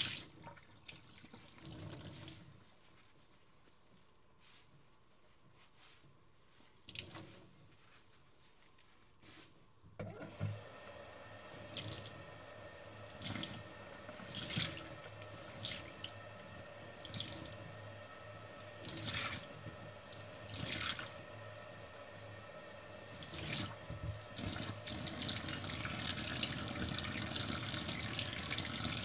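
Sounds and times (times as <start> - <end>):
tap water running: 0.0 - 2.6, 10.0 - 29.0.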